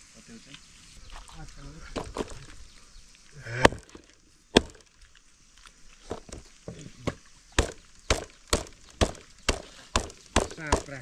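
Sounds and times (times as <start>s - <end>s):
sharp chopping blows: 3.4s - 4.9s, 7.0s - 11.0s.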